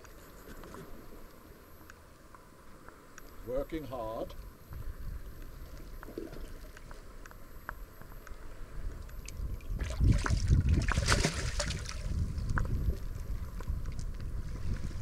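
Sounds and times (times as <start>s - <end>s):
fish splashing in water: 9.7s - 12.2s.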